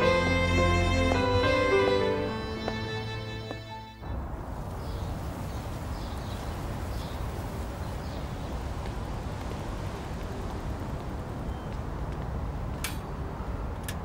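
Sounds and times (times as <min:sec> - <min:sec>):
distant traffic: 0:00.0 - 0:14.0
wind rumble: 0:04.0 - 0:14.0.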